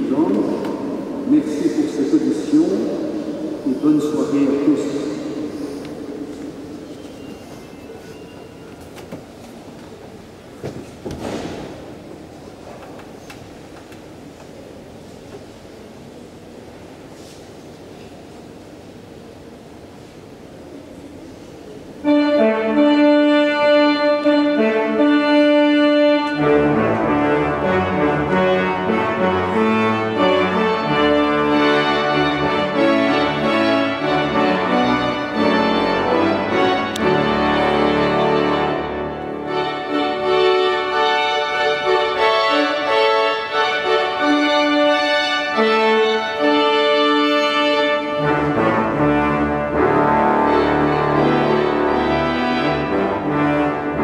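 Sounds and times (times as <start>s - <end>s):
pipe organ chords: 22.0s - 54.0s.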